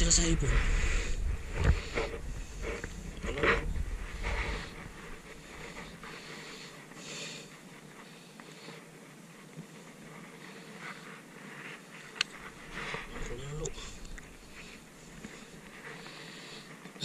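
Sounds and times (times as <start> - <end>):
wind rumbling on microphone: 0.0 - 6.1
rustles and scuffs: 0.4 - 17.0.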